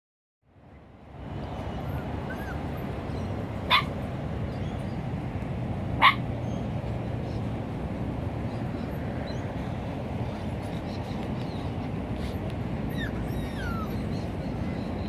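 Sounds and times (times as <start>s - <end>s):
puppies yipping: 1.8s - 4.0s, 6.0s - 6.3s, 10.6s - 15.0s.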